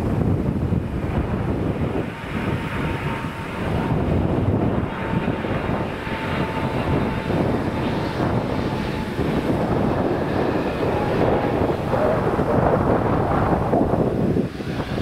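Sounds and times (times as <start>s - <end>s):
faint thin whine: 0.0s - 15.0s
jet engine rumble: 0.0s - 15.0s.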